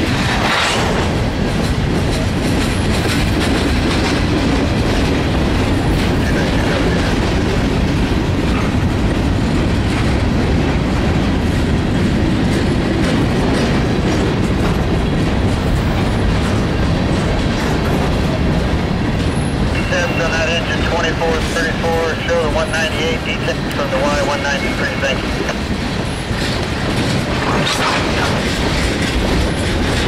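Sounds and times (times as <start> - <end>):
freight train rumbling past: 0.0 - 30.0
wheels clicking on rails: 1.2 - 19.9, 23.5 - 30.0.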